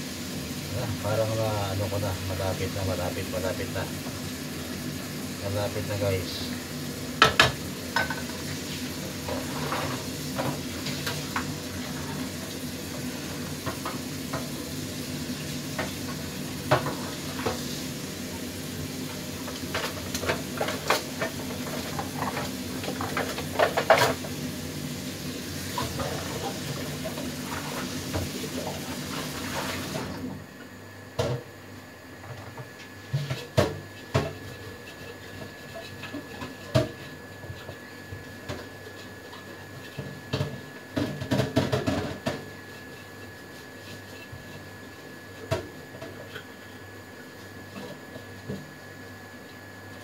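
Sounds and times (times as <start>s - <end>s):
sauce sizzling in a wok: 0.0s - 30.2s.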